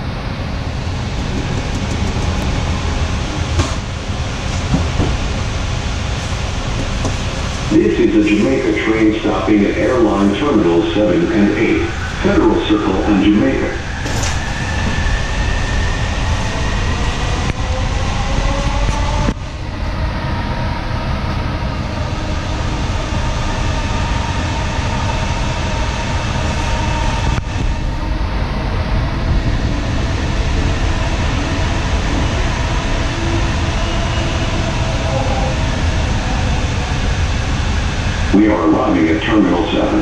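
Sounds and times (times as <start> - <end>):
train running on guideway: 0.0 - 40.0.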